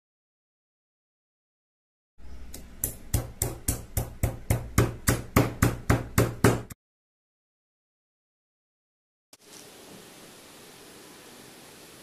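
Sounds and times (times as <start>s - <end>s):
pestle pounding in stone mortar: 2.8s - 6.8s.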